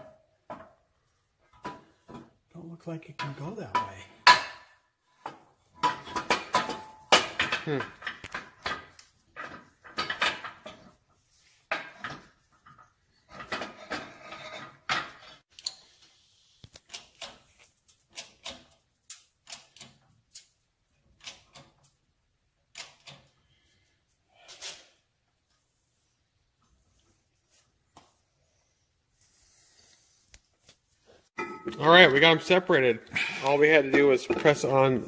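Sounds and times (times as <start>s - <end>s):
metal clicks and clanks: 3.1s - 11.0s, 11.7s - 15.9s, 16.7s - 22.0s, 22.7s - 23.4s.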